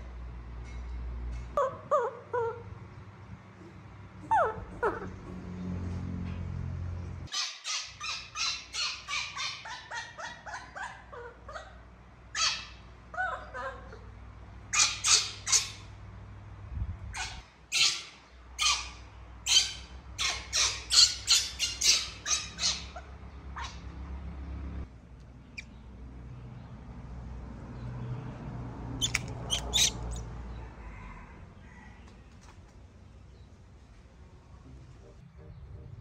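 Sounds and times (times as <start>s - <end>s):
young monkey squealing and crying: 4.2s - 5.2s, 7.3s - 14.0s, 14.7s - 15.9s, 17.1s - 23.8s, 29.0s - 30.3s
shrill monkey screeches: 14.7s - 15.9s, 17.2s - 23.0s, 29.0s - 30.2s.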